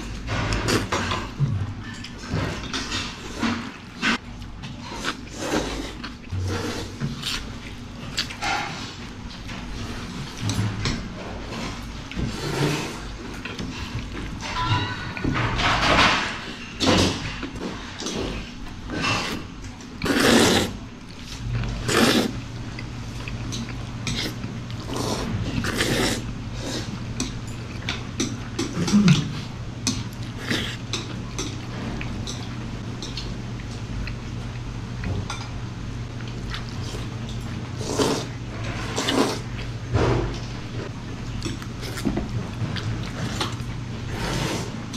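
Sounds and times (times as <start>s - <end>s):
steady low hum: 0.0s - 44.9s
chopsticks and bowls clinking: 14.2s - 18.3s
noodles being slurped: 20.0s - 22.4s, 24.0s - 27.0s, 37.8s - 39.6s, 43.1s - 44.9s.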